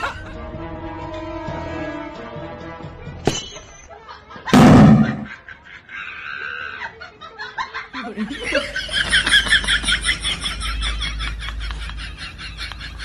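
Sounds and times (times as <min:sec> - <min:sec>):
background music: 0:00.0 - 0:03.4
firework blast: 0:04.6 - 0:05.3.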